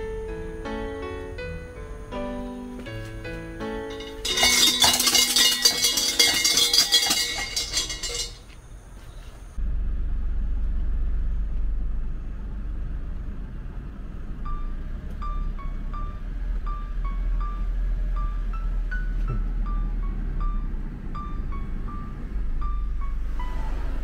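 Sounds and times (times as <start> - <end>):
soft music: 0.0 - 6.6
low outdoor rumble: 0.0 - 24.0
shrine bell jangling: 3.9 - 8.4.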